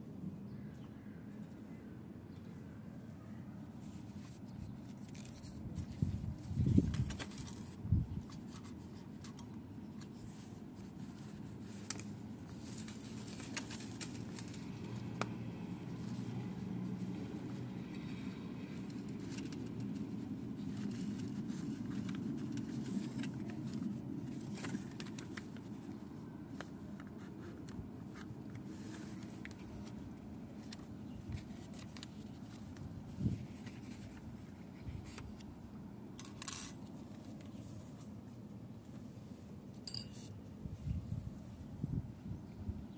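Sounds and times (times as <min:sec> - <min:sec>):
paper clips clicking and scraping: 0:36.2 - 0:37.3.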